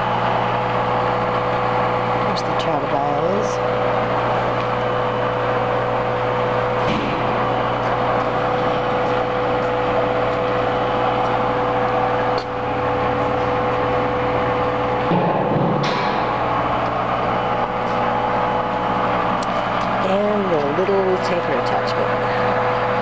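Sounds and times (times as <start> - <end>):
machinery drone: 0.0 - 23.0.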